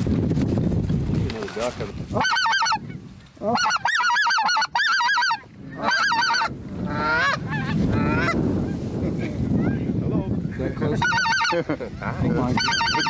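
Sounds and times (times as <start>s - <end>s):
goose honking: 2.1s - 8.8s, 10.9s - 11.8s, 12.4s - 13.0s.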